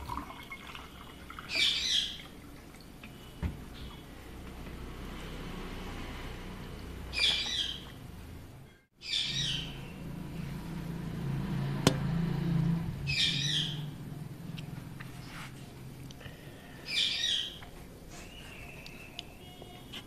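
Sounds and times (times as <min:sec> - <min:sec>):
low steady hum: 0:00.0 - 0:20.0
bird chirping: 0:07.1 - 0:08.0, 0:09.0 - 0:10.6, 0:13.0 - 0:14.6, 0:16.8 - 0:20.0.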